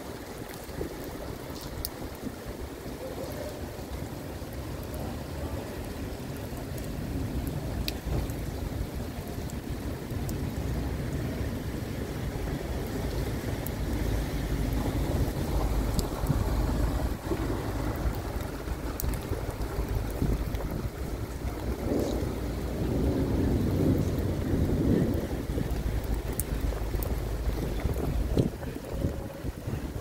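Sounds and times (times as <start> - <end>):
heavy rain hissing: 0.0 - 30.0
wind buffeting microphone: 6.5 - 30.0.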